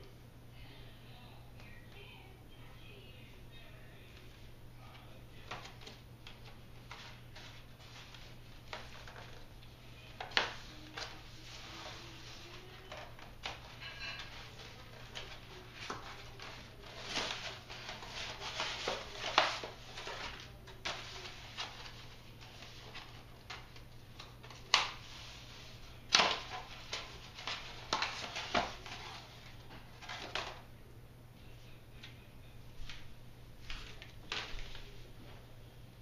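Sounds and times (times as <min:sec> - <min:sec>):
paper and foam rustling: 0:05.4 - 0:30.6.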